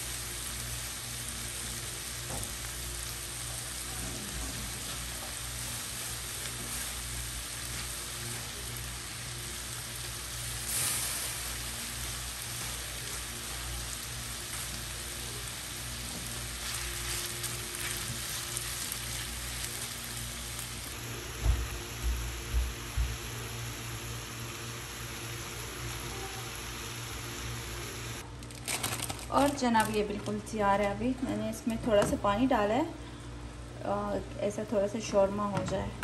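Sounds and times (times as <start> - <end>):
food sizzling in a pan: 0.0 - 28.2.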